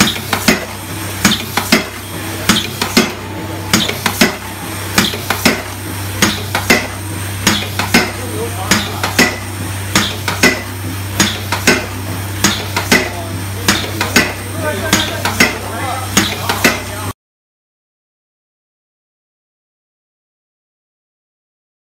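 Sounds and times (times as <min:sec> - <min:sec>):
power press metallic clanks: 0:00.0 - 0:17.0
steady low hum: 0:00.0 - 0:17.2.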